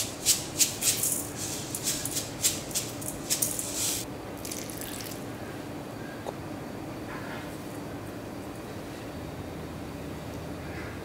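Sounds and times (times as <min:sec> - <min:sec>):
seeds rattling in shaker: 0:00.0 - 0:04.1.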